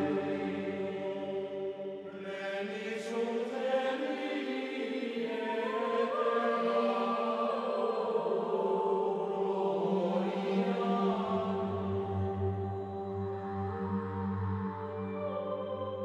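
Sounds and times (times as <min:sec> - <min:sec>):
choir chanting: 0:00.0 - 0:16.0.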